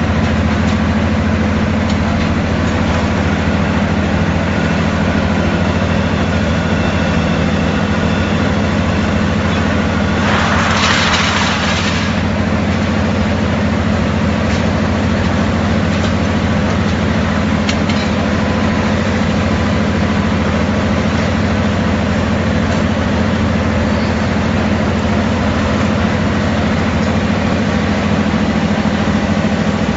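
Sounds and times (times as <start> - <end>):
rolling mill machinery drone: 0.0 - 29.9
hissing rush: 9.7 - 12.8.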